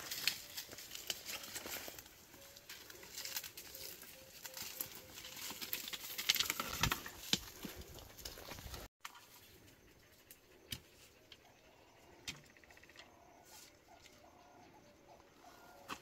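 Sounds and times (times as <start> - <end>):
footsteps on dry ground: 0.0 - 8.9
rustling leaves: 0.0 - 8.9
twigs crackling: 0.0 - 8.9.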